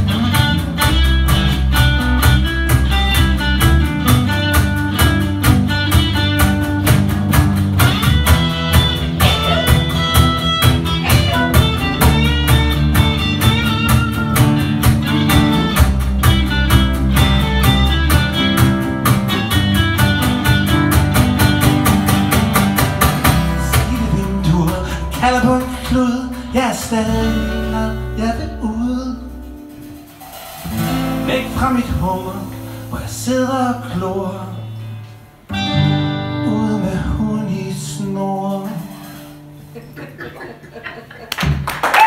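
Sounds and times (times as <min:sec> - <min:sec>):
cajon beat: 0:00.0 - 0:34.2, 0:37.7 - 0:42.0
acoustic guitars strumming: 0:00.0 - 0:41.6.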